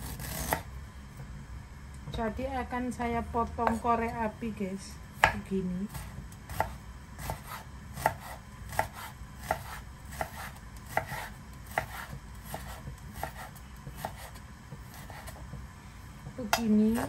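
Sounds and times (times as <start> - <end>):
knife chopping on wooden board: 3.6 - 3.8, 5.2 - 15.4.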